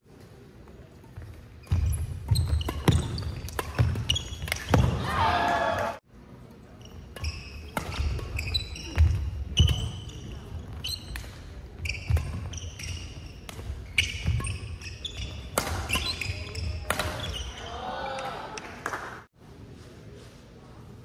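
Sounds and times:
shoes squeaking on court floor: 0:00.1 - 0:05.1, 0:06.4 - 0:17.8
racket hitting shuttlecock: 0:01.0 - 0:05.1, 0:07.1 - 0:17.4.

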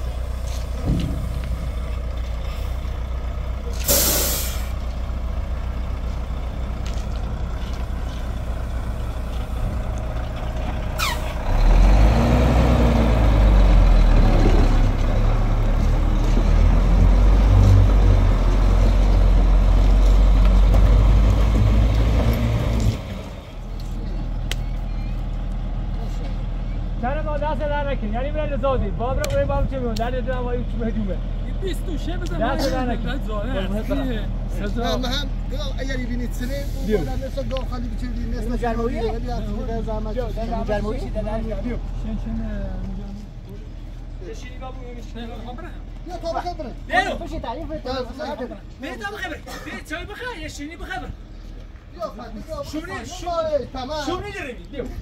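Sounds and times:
diesel truck engine idling and revving: 0:00.0 - 0:52.0
air hiss: 0:03.8 - 0:04.8.

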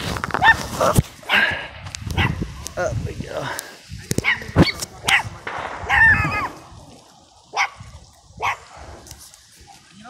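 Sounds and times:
dog barking: 0:00.4 - 0:00.6, 0:02.2 - 0:02.4, 0:04.2 - 0:05.3, 0:07.5 - 0:07.8, 0:08.4 - 0:08.6.

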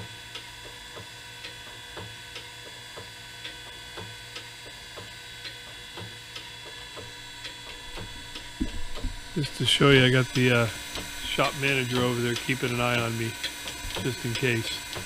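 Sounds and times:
grinder motor hum: 0:06.7 - 0:15.0.

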